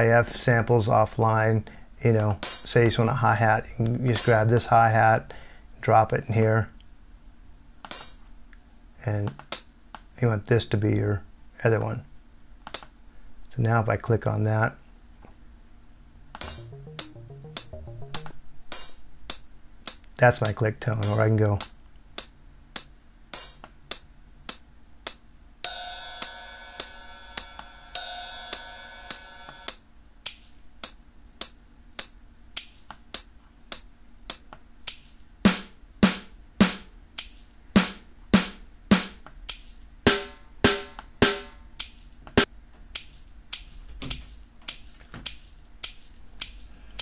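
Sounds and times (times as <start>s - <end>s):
hi-hat ticks: 4.2s - 4.7s, 16.4s - 35.6s, 36.6s - 47.0s
longer ringing hits: 16.4s - 18.3s, 25.7s - 29.7s, 40.1s - 41.6s
snare drum hits: 16.4s - 18.3s, 35.5s - 36.9s, 37.8s - 39.2s, 40.1s - 41.6s
click track beat: 16.4s - 18.9s, 34.3s - 46.6s
shaker ticks: 34.3s - 35.3s, 37.2s - 37.6s, 41.8s - 47.0s.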